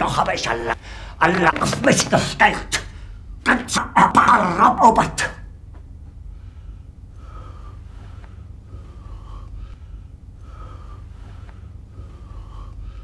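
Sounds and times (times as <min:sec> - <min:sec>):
low room rumble: 0:00.0 - 0:13.0
man breathing heavily: 0:00.8 - 0:01.2, 0:06.2 - 0:13.0.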